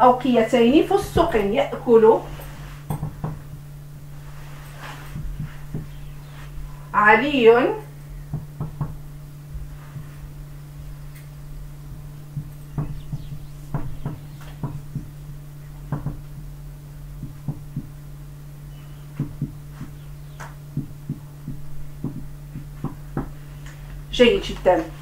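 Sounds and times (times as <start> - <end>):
low hum: 0.0 - 25.0
marker tapping on whiteboard: 5.4 - 6.0, 8.3 - 9.0, 12.4 - 15.1, 15.9 - 16.4, 17.2 - 17.9, 19.2 - 23.4.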